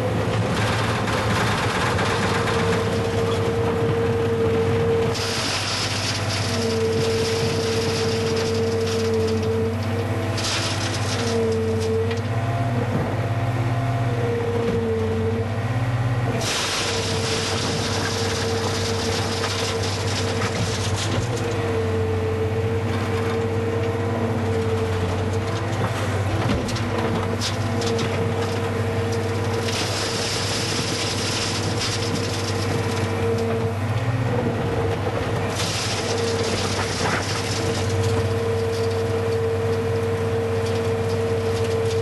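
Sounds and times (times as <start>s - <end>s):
loader engine humming and whining: 0.0s - 42.0s.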